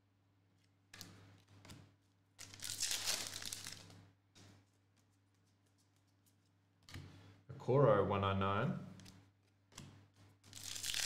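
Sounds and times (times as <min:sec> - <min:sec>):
trading cards crinkling and rustling: 0:02.4 - 0:06.6.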